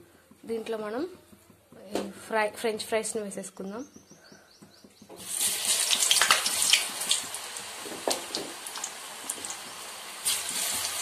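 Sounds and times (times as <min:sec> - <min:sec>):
potatoes sizzling in deep oil: 0:05.2 - 0:11.0.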